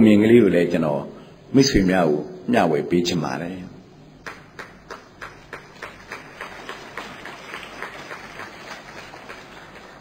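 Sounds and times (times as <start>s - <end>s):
audience clapping in rhythm: 4.2s - 10.0s.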